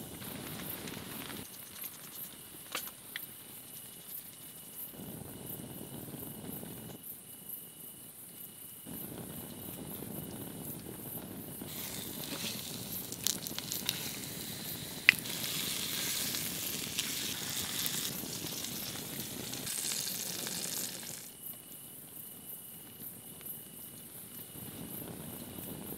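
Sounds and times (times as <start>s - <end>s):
insects chirping: 0.0s - 25.9s
fish sizzling in a skillet: 11.7s - 21.3s.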